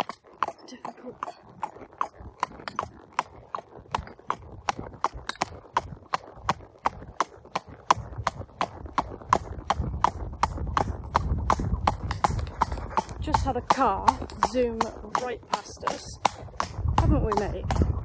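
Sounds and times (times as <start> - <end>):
hooves clip-clopping on wet road: 0.0 - 18.0
low rumble: 1.6 - 18.0.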